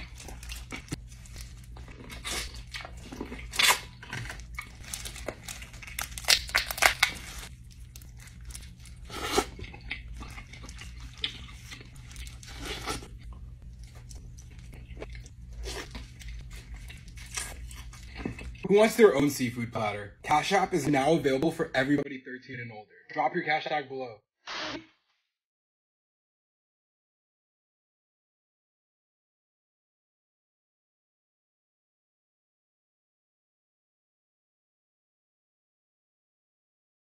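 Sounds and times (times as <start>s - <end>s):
chewing close to microphone: 0.0s - 18.6s
crab shell cracking: 3.4s - 8.7s.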